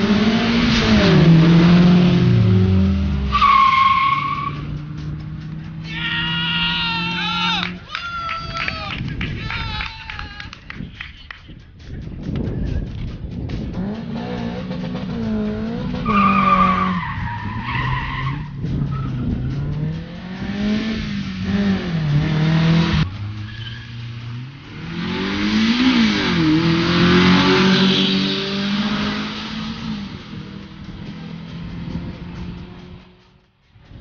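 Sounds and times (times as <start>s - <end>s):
car engine revving: 0.0s - 5.9s, 12.9s - 33.6s
tyres squealing: 16.0s - 19.7s.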